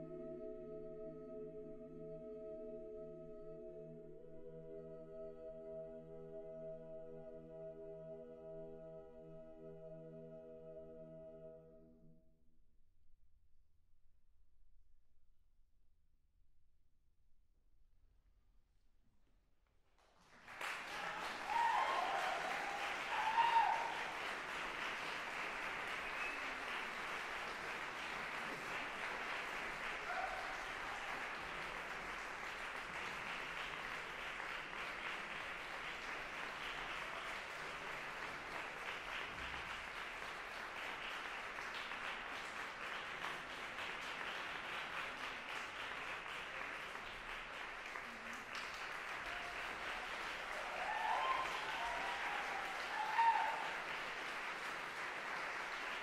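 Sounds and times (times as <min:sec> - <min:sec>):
audience applause: 0:20.0 - 0:56.0.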